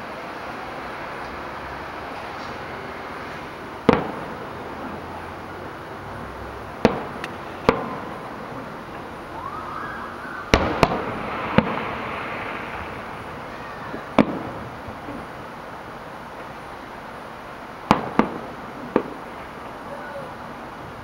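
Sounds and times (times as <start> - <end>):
fireworks bursting with sharp bangs: 0.0 - 20.4
city background noise: 0.0 - 21.0
rising firework whistle: 6.8 - 15.4.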